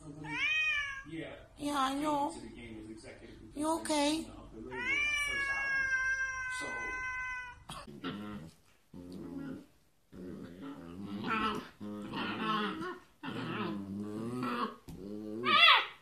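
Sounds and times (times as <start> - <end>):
cat meowing: 0.0 - 1.1, 4.6 - 7.9
puppy whining and howling: 15.4 - 16.0.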